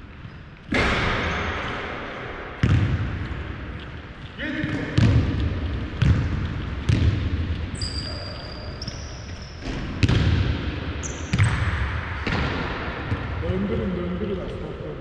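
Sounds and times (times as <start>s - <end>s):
sneakers squeaking on wooden floor: 0.2s - 0.6s, 3.2s - 10.2s, 11.0s - 11.6s
basketball bouncing on hardwood: 2.6s - 3.3s, 4.6s - 7.5s, 9.6s - 10.6s.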